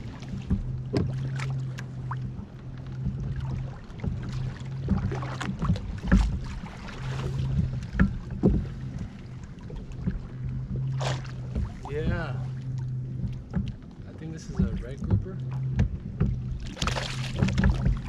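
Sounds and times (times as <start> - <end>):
low hum: 0.0 - 18.0
water around a kayak: 0.0 - 18.0
wind: 0.0 - 18.0
knocks and clatter: 7.6 - 8.8.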